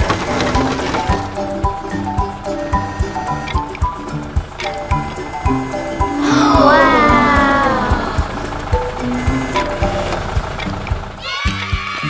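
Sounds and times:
cheerful music with beat: 0:00.0 - 0:12.0.

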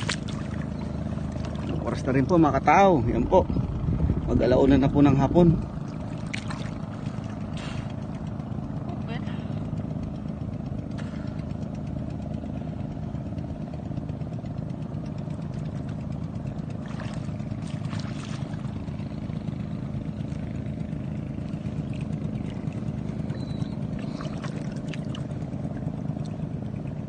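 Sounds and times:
water splashing: 0:00.0 - 0:02.3, 0:05.6 - 0:09.5, 0:10.8 - 0:11.7, 0:15.3 - 0:27.0
boat engine running: 0:00.0 - 0:27.0.

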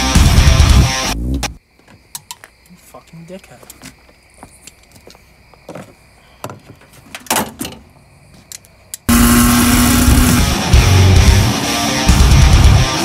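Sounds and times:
heavy metal music with electric guitar: 0:00.0 - 0:01.5, 0:09.1 - 0:13.0.

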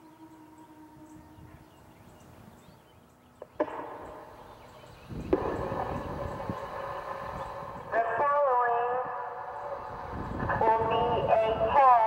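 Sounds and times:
electronic siren alert tone: 0:00.0 - 0:02.2
rushing noise: 0:05.1 - 0:11.8.

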